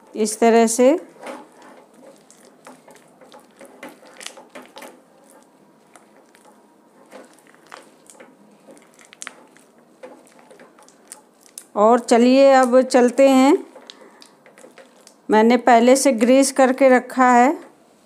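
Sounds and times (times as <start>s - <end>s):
spatula scraping a pan: 0.9s - 11.3s.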